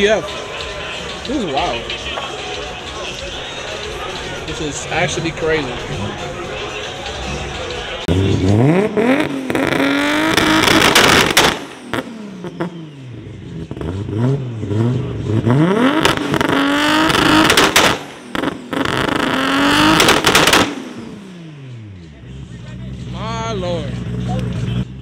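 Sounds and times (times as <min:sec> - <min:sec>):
car engine revving: 0:00.0 - 0:25.0
exhaust pops and cracks: 0:10.2 - 0:12.1, 0:16.0 - 0:20.8.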